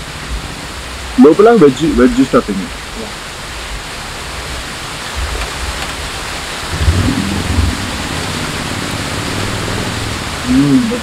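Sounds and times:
waterfall rushing: 0:00.0 - 0:11.0
low rumble: 0:05.1 - 0:11.0.

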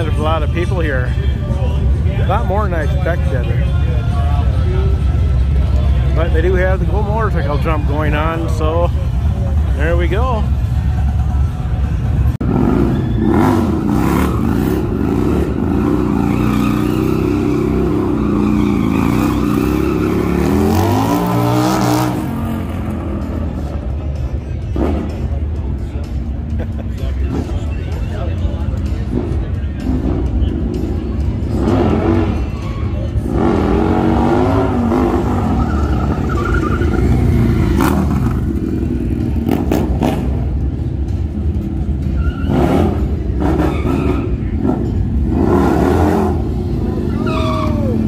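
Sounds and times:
motorcycle engines revving: 0:00.0 - 0:48.0
music: 0:22.0 - 0:48.0.

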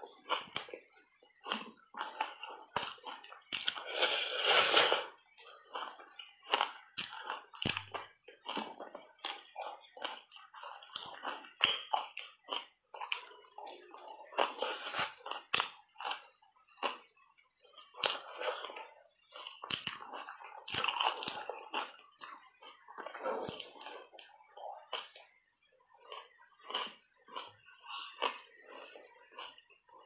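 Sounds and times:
biting and crunching ice: 0:19.4 - 0:22.4.

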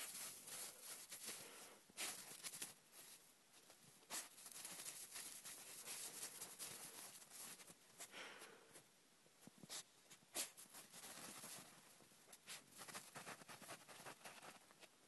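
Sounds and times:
snow crunching and rustling: 0:00.0 - 0:03.2, 0:04.1 - 0:07.8.

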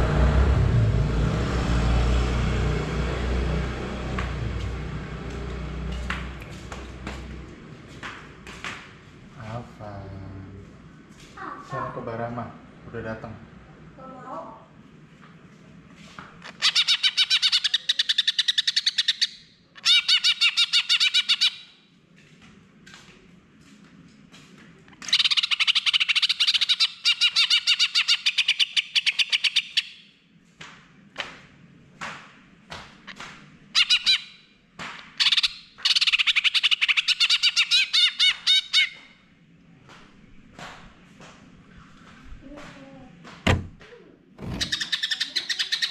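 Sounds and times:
soft bird calls: 0:44.4 - 0:45.9.

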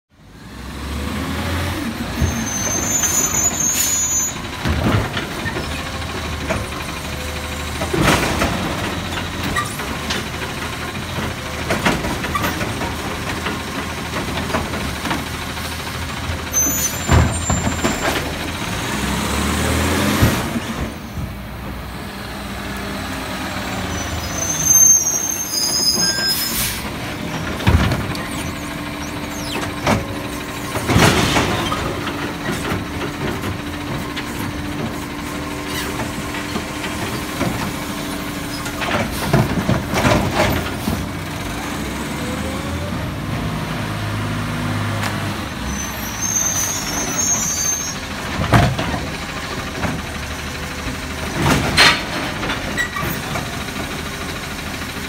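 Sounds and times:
hydraulic arm clanking carts: 0:01.9 - 0:21.9, 0:23.8 - 0:43.4, 0:44.8 - 0:55.0
air brakes hissing with squeal: 0:02.2 - 0:04.5, 0:16.5 - 0:18.3, 0:23.8 - 0:27.0, 0:28.2 - 0:29.9, 0:35.6 - 0:36.0, 0:45.6 - 0:48.1, 0:52.8 - 0:53.3
truck engine running: 0:26.4 - 0:55.0.

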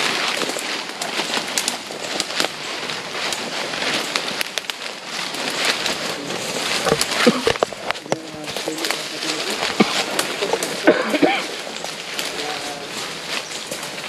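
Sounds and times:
footsteps crunching dry leaves: 0:00.0 - 0:14.0.

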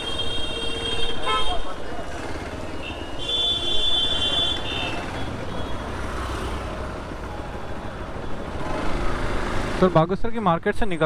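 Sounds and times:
high-pitched vehicle horn: 0:00.0 - 0:01.7, 0:02.8 - 0:05.0
slow town traffic: 0:00.0 - 0:11.0.

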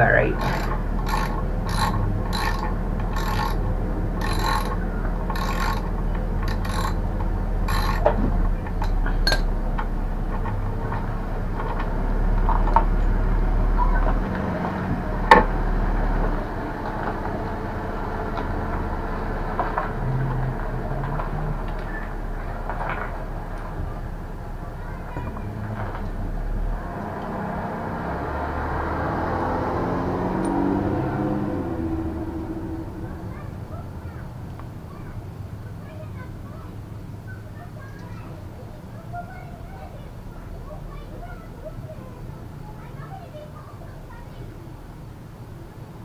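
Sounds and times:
wrench metallic rasps: 0:00.3 - 0:03.6, 0:04.2 - 0:07.0, 0:07.6 - 0:08.2
metal handling noise: 0:07.7 - 0:09.6.

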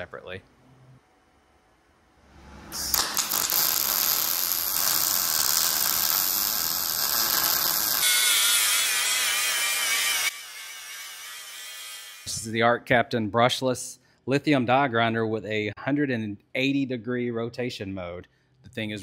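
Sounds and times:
welding arc crackling: 0:02.7 - 0:12.3
angle grinder whining on steel: 0:02.8 - 0:12.4.

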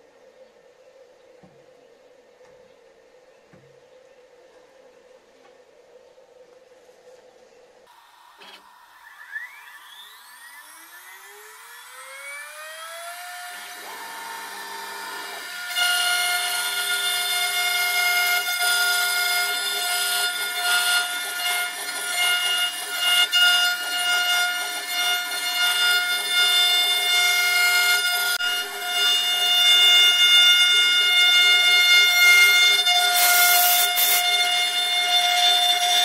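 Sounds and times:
router spindle motor whining: 0:07.9 - 0:36.0
wood being milled: 0:08.2 - 0:36.0.

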